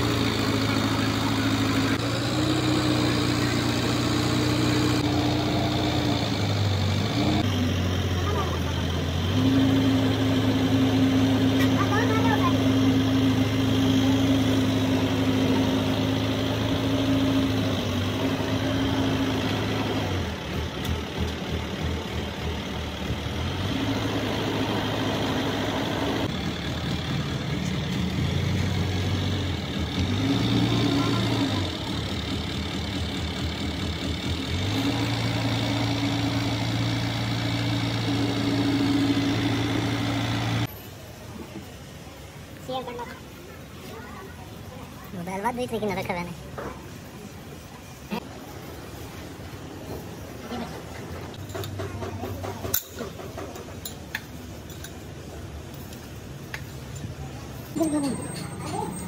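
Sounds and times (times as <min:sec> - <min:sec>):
engine idling: 0:00.0 - 0:40.7.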